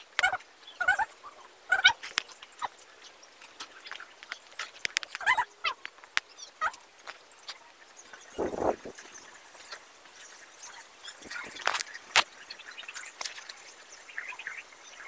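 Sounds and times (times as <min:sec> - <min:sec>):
high-pitched chirping trills: 0:00.2 - 0:02.9, 0:08.2 - 0:11.7.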